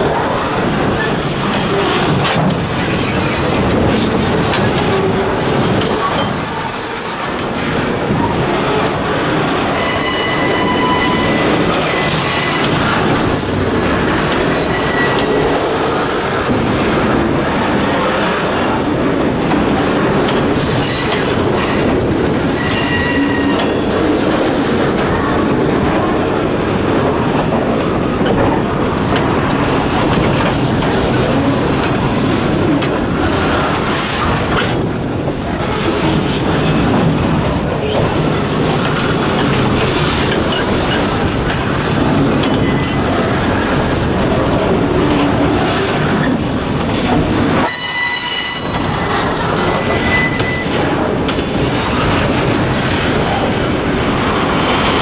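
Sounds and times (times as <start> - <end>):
train wheels on rails: 0.0 - 55.0
high wheel squeal: 2.8 - 3.7, 9.6 - 14.0, 14.6 - 15.6, 20.7 - 23.9, 42.5 - 43.2, 47.5 - 51.0.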